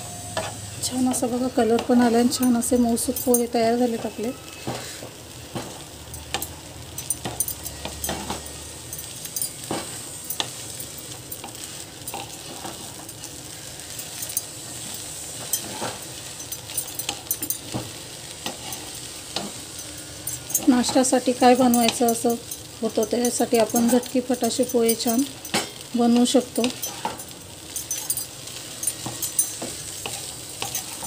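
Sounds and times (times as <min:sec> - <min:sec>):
light sizzle: 0:00.0 - 0:31.0
spatula scraping a pan: 0:04.0 - 0:05.8, 0:26.6 - 0:31.0.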